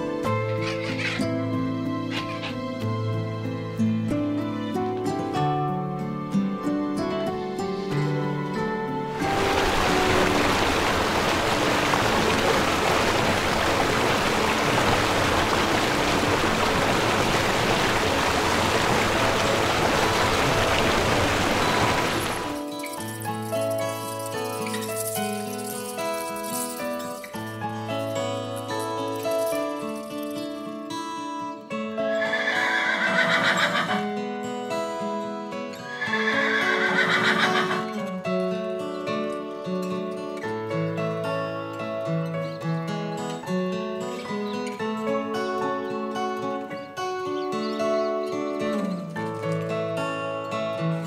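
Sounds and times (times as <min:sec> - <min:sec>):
background music: 0:00.0 - 0:51.0
waterfall rushing: 0:09.1 - 0:22.7
horse whinnying: 0:32.1 - 0:34.0, 0:35.8 - 0:37.9.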